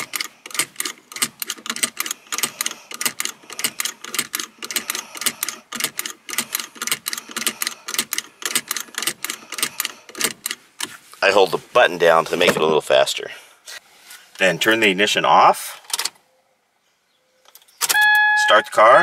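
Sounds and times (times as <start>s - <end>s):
seat belt buckle clicking: 0.0s - 10.9s.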